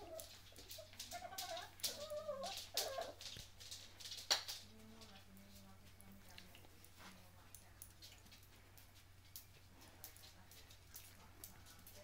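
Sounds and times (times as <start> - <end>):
puppies whining and growling: 0.0 - 3.4.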